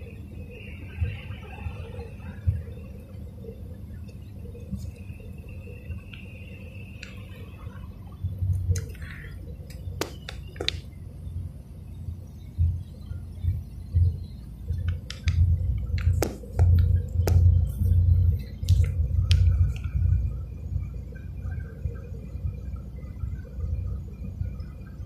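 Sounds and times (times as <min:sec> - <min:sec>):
car rumble inside cabin: 0:00.0 - 0:25.0
sharp clicks and taps: 0:09.7 - 0:10.8, 0:14.7 - 0:17.5.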